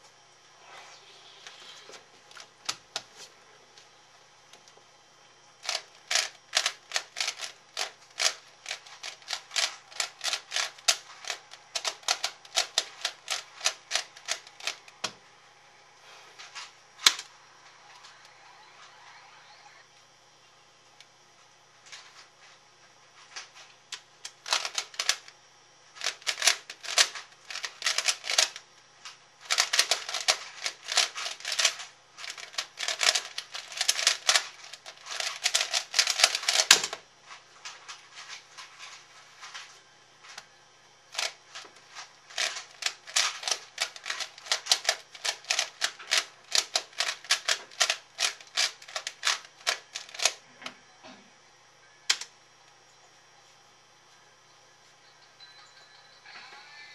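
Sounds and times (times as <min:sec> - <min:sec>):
plastic puzzle cube clicking: 0:29.5 - 0:37.0, 0:42.3 - 0:50.4.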